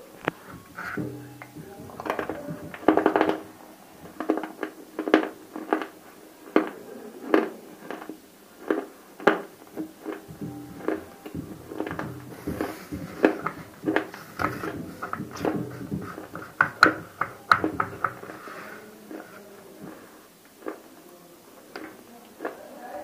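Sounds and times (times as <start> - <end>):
crunchy chewing: 4.1 - 10.3, 19.1 - 21.0.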